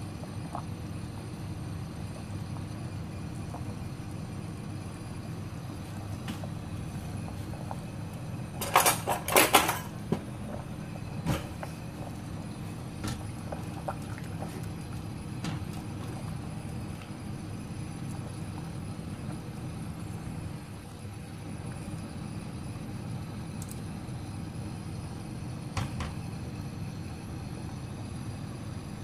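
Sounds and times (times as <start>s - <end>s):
soup boiling with low hum: 0.0s - 29.0s.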